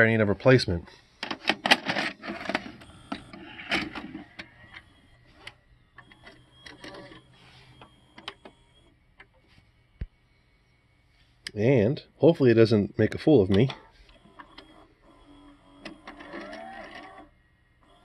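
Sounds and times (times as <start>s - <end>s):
vcr motor whine: 2.1s - 11.2s, 13.5s - 18.0s.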